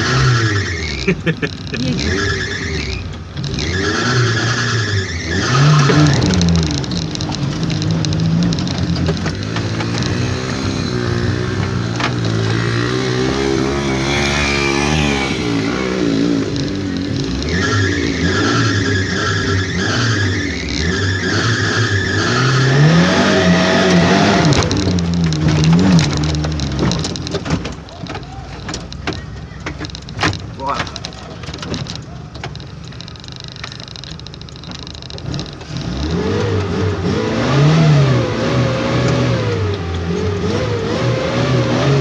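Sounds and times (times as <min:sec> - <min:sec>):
off-road engine revving hard: 0:00.0 - 0:27.4, 0:35.3 - 0:42.0.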